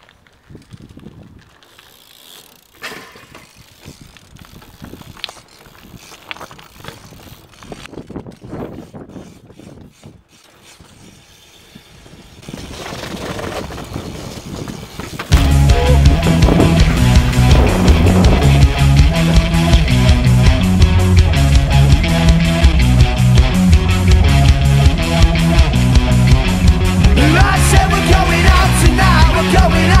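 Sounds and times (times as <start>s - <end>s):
tyre rolling on pavement: 0.0s - 8.0s, 12.4s - 20.4s
bike hub ratcheting clicks: 1.4s - 11.7s
bike knocks: 2.7s - 4.0s, 12.5s - 19.8s
loud rock music: 15.3s - 30.0s
rushing noise: 15.3s - 30.0s.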